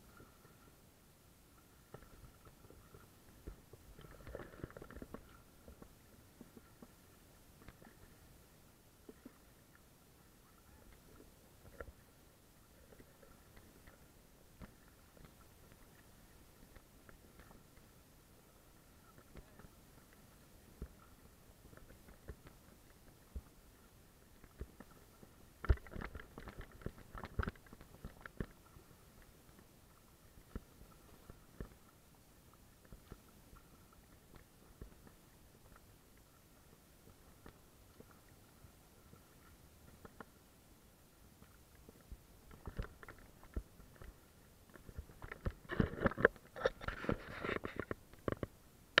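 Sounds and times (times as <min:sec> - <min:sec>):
paddle dipping and splashing: 0:00.0 - 0:49.0
small splashes and knocks: 0:01.9 - 0:07.0, 0:24.4 - 0:29.7, 0:41.8 - 0:48.6.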